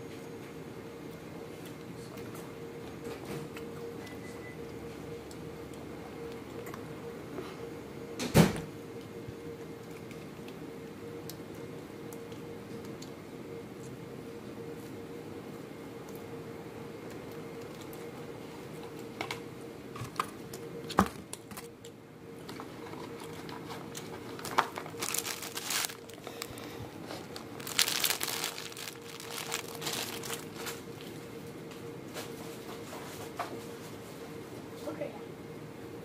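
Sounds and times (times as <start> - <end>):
steady hum: 0.0 - 36.0
food wrappers crinkling: 22.8 - 31.2.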